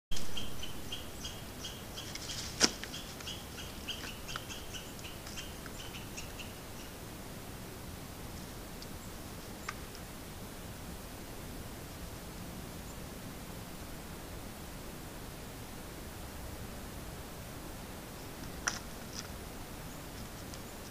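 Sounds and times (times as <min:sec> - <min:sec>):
bird calling in sharp notes: 0:00.2 - 0:02.1, 0:02.9 - 0:07.0.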